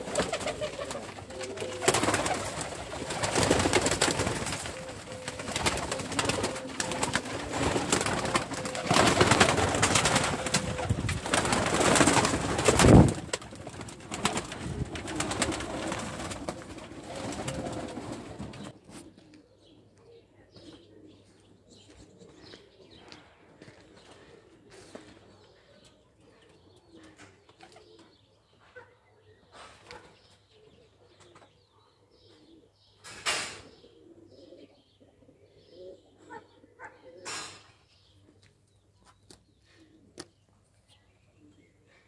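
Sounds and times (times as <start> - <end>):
pigeon wings flapping: 0.0 - 18.7
pigeons cooing: 0.0 - 38.4, 39.5 - 40.4.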